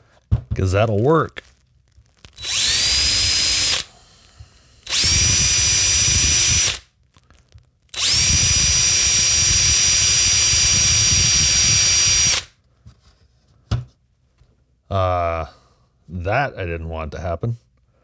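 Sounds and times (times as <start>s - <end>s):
cordless drill drilling plastic: 2.2s - 6.8s, 7.9s - 12.5s
drill motor whine: 2.4s - 6.8s, 7.9s - 12.5s.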